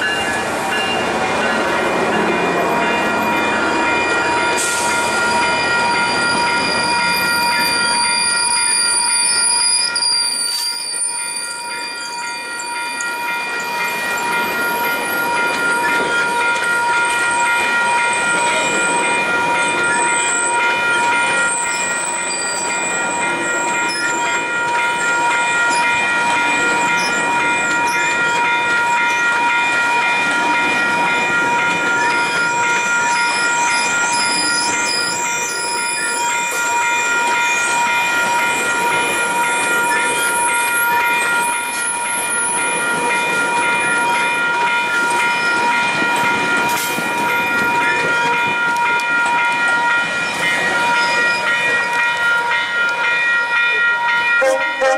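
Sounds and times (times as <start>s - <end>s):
train rolling past: 0.0s - 54.9s
high-pitched wheel squeal: 5.5s - 12.3s.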